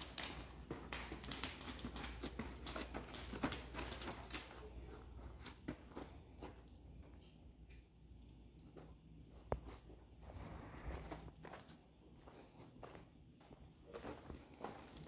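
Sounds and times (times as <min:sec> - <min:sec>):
hooves and footsteps on sand: 0:00.0 - 0:07.2, 0:08.6 - 0:15.0.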